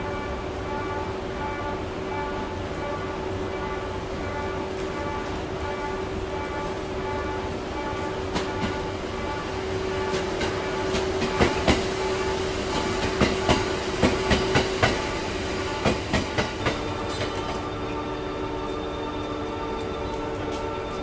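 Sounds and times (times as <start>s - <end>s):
train hum: 0.0s - 21.0s
train wheels clacking on rail joints: 8.0s - 8.9s, 9.8s - 17.8s.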